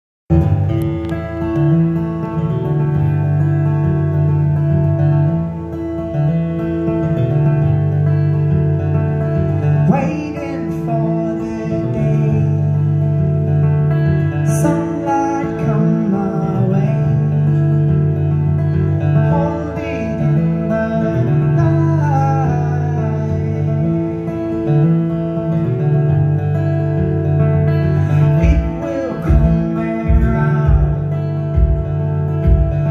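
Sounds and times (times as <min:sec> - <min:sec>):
amplified acoustic guitar: 0:00.3 - 0:32.9.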